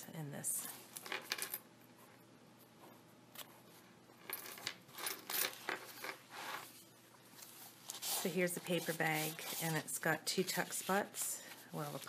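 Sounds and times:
paper journal pages rustling: 7.4s - 12.0s.

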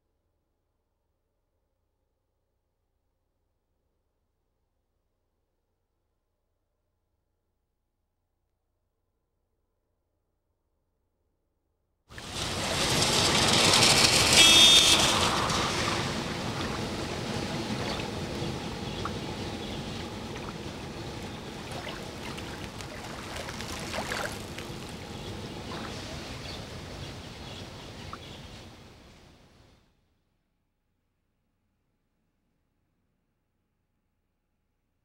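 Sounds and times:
water splashing and sloshing: 12.1s - 28.8s
traffic: 12.2s - 29.6s.

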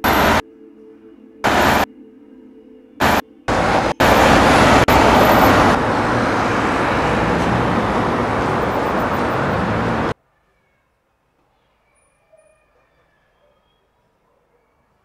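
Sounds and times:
vehicle passing close by: 3.0s - 10.2s.

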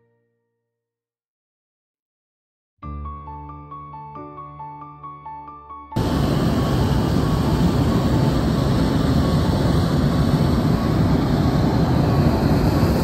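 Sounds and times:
propane burner blast: 6.0s - 13.0s.

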